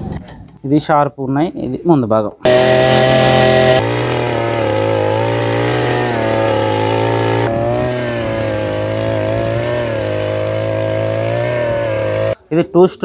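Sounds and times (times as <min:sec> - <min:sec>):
brush cutter engine running: 0:02.5 - 0:12.4.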